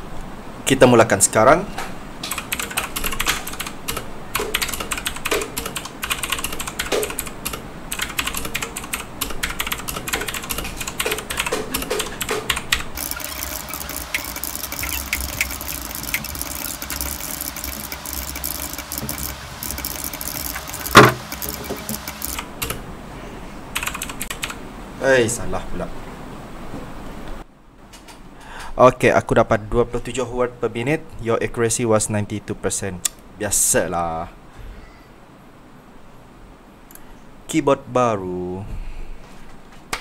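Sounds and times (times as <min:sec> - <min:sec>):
mechanical keyboard typing: 0:02.2 - 0:22.8, 0:23.8 - 0:24.6.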